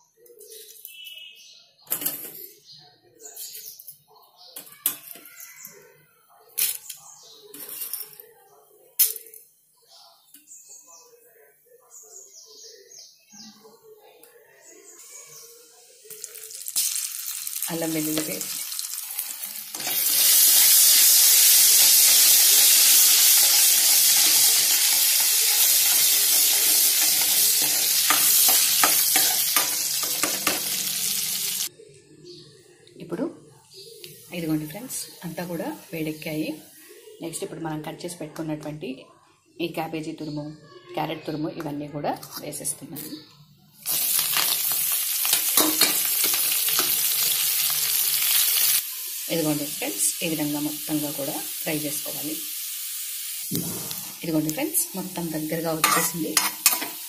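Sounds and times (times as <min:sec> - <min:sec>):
paste sizzling in hot oil: 0:16.2 - 0:31.7, 0:43.8 - 0:57.0.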